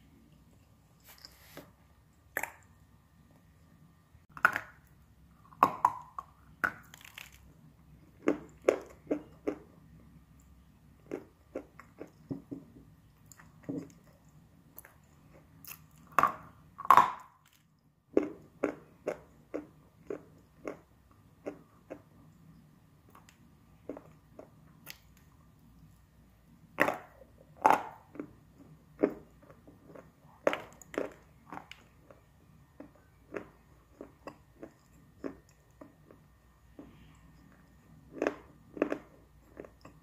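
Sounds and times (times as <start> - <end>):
person chewing crunchy clay: 4.3 - 22.2, 26.7 - 40.0.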